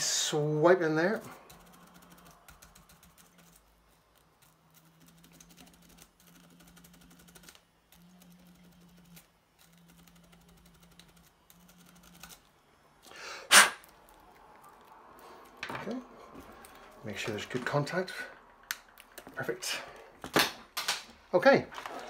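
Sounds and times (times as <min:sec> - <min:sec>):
toothbrush scrubbing: 0:00.8 - 0:12.6.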